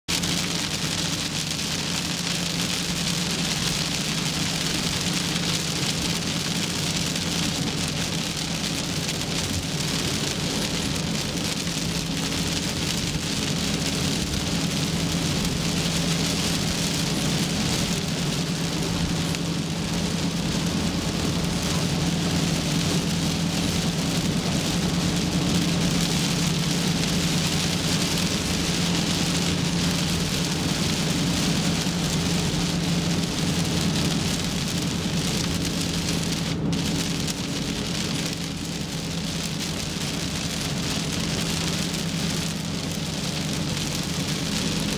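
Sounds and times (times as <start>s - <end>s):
car and tyres humming: 0.1s - 44.9s
heavy rain on car roof: 0.1s - 44.9s.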